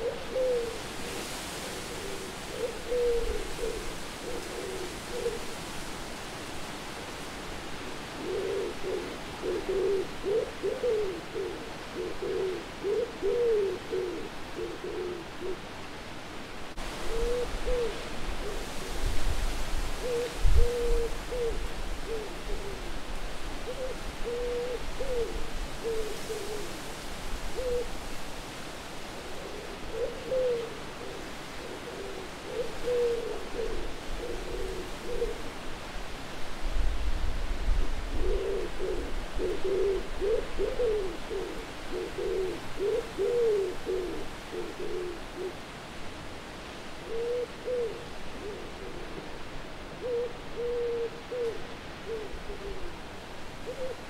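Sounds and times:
owl hooting: 0:00.0 - 0:05.5, 0:08.2 - 0:15.6, 0:17.0 - 0:18.8, 0:20.0 - 0:23.0, 0:23.7 - 0:26.8, 0:27.6 - 0:27.9, 0:29.3 - 0:35.4, 0:37.8 - 0:45.6, 0:47.0 - 0:49.2, 0:50.0 - 0:53.0, 0:53.6 - 0:54.0
wind hiss: 0:00.0 - 0:54.0.

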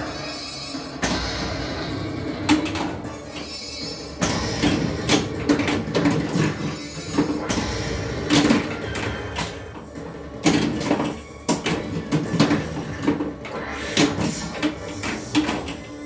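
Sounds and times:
pinball clacks and knocks: 0:02.4 - 0:03.1, 0:04.2 - 0:16.0.

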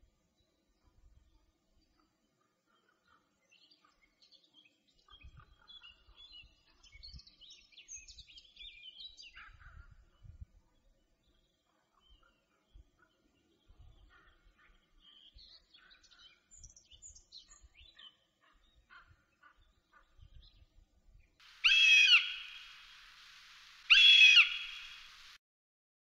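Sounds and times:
small songbirds twittering: 0:21.5 - 0:25.4
hawk crying: 0:21.6 - 0:25.4.

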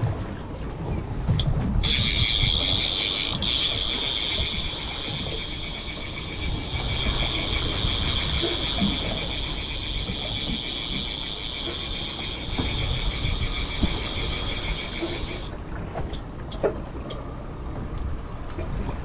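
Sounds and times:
fishing reel ratcheting whine: 0:01.8 - 0:15.5
outboard motors running low: 0:01.8 - 0:16.2.

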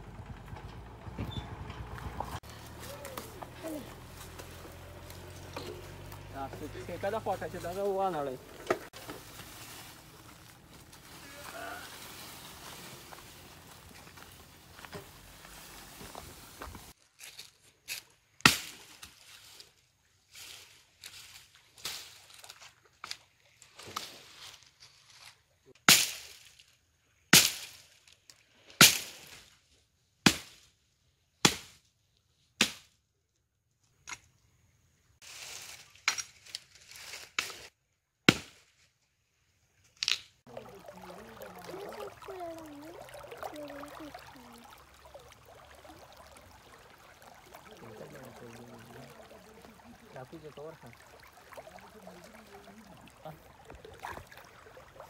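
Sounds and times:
branches snapping: 0:02.4 - 0:03.6, 0:17.2 - 0:19.2, 0:25.8 - 0:26.7, 0:35.4 - 0:37.7, 0:39.8 - 0:40.4
hatchet chopping branches: 0:17.3 - 0:19.2, 0:25.8 - 0:26.4, 0:27.3 - 0:27.8, 0:28.8 - 0:29.3, 0:30.2 - 0:30.7, 0:31.4 - 0:31.8, 0:32.6 - 0:33.0, 0:37.3 - 0:38.8.

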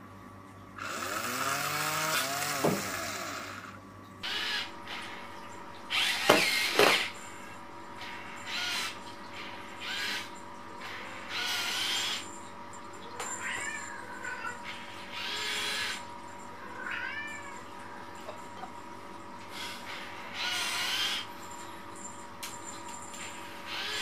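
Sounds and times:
toy robot motors whirring: 0:00.8 - 0:05.2, 0:05.9 - 0:07.2, 0:08.0 - 0:12.4, 0:13.2 - 0:16.0, 0:20.4 - 0:21.3, 0:23.3 - 0:24.0.

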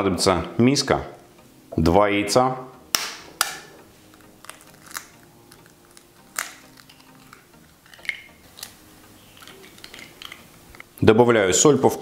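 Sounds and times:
eggshells cracking: 0:02.9 - 0:11.0.

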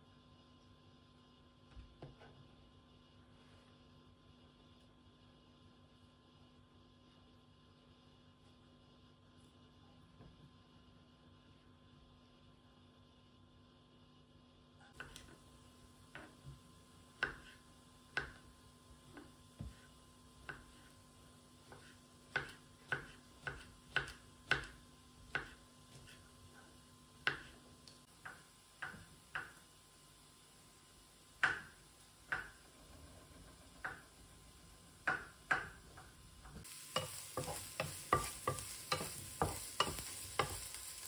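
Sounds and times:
kitchen utensils clicking and tapping: 0:35.0 - 0:40.8.

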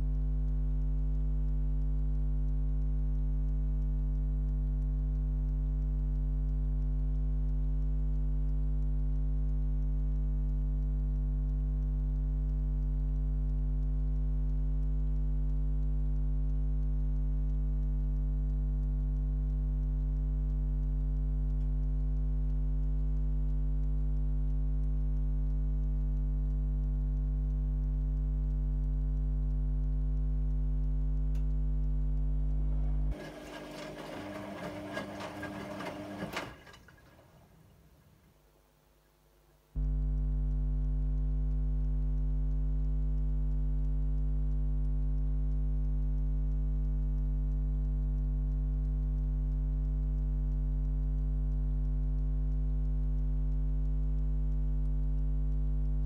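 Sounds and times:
washing machine mains hum: 0:27.5 - 0:39.2.

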